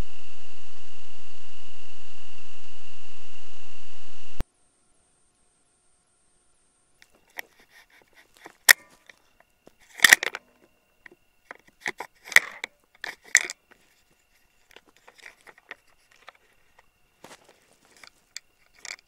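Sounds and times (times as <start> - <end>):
sharp clicks and crackles: 7.0 - 16.9, 17.8 - 19.0.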